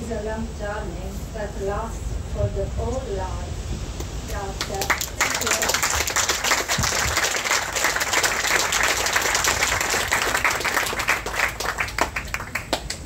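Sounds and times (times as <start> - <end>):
crowd applauding: 4.6 - 13.0.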